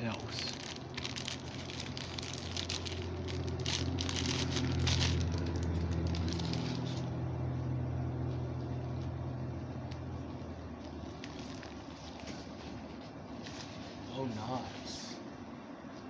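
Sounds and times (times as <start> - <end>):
plastic packaging crinkling: 0.0 - 7.1, 10.8 - 14.0
low droning hum: 0.0 - 16.0.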